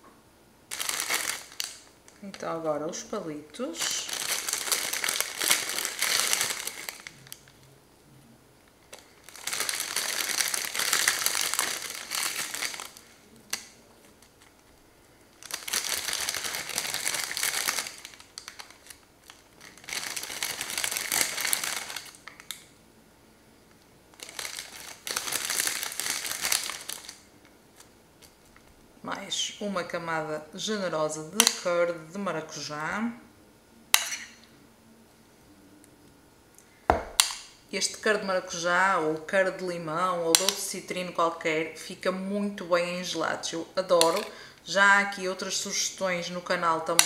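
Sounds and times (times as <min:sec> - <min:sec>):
plastic packet crinkling: 0:00.7 - 0:02.5, 0:03.8 - 0:07.6, 0:08.8 - 0:22.6, 0:24.1 - 0:28.7.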